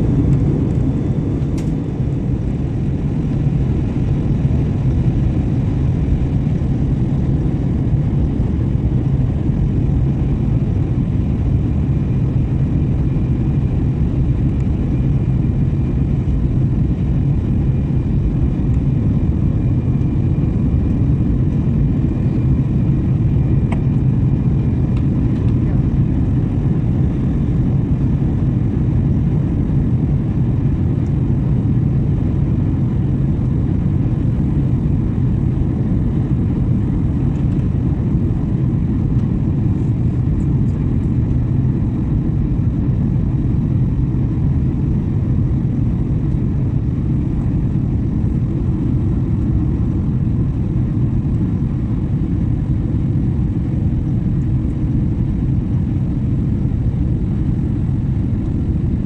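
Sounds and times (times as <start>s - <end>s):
rushing airflow: 0.0s - 3.8s
jet engines droning: 0.0s - 59.0s.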